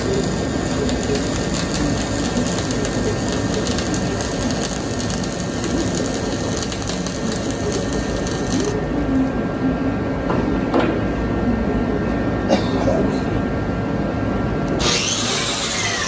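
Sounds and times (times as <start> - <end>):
welding arc crackling: 0.0 - 8.8
steady low hum: 0.0 - 16.0.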